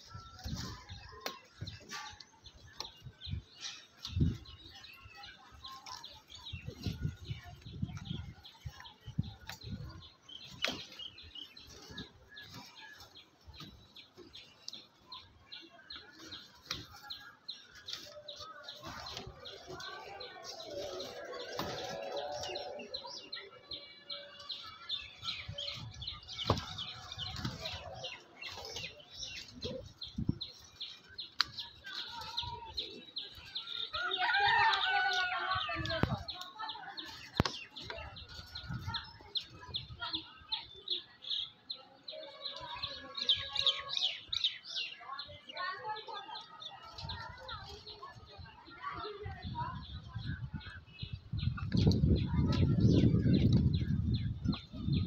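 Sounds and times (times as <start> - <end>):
birds chirping: 0.0 - 55.0.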